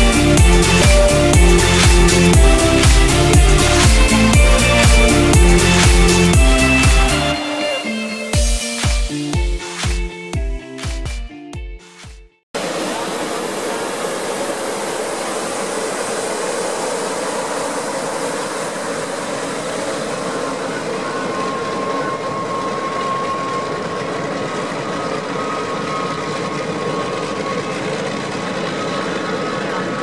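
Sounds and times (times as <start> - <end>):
propeller engines drone: 0.0 - 9.8, 12.6 - 30.0
faint whine: 12.6 - 30.0.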